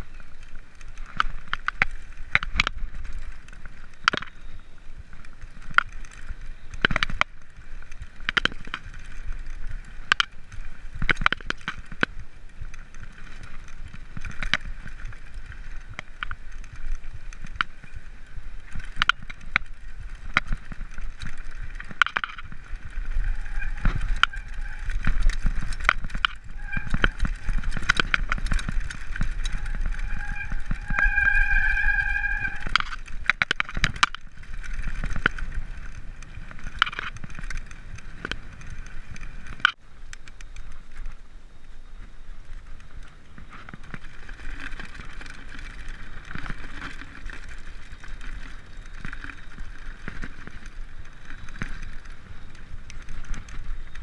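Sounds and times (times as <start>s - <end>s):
bike chain and frame rattling: 0.0s - 54.0s
tyres rolling on dirt: 0.0s - 54.0s
high ringing whine: 21.8s - 33.0s.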